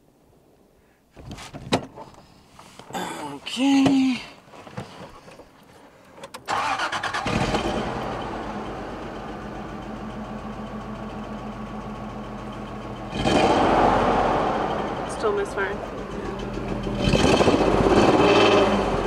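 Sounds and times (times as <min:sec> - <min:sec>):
engine starter cranking: 0:06.2 - 0:08.1
gasoline engine idling: 0:06.4 - 0:19.0.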